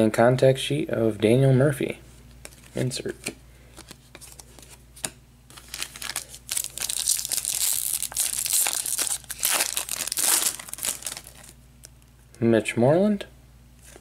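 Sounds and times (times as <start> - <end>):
card pack wrapper tearing and crinkling: 5.5 - 11.6.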